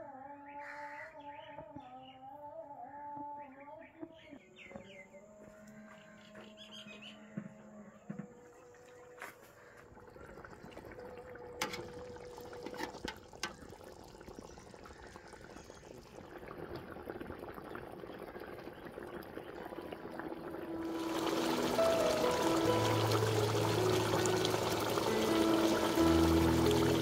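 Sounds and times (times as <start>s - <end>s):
broth sloshing and bubbling: 9.6s - 27.0s
music: 20.4s - 27.0s.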